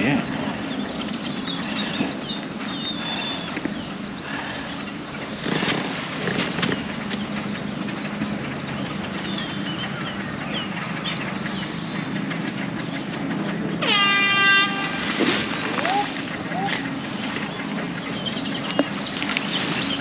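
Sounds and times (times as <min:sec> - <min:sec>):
small birds chirping: 0:00.0 - 0:13.8, 0:14.4 - 0:20.0
steady rushing noise: 0:00.0 - 0:13.8, 0:14.6 - 0:20.0.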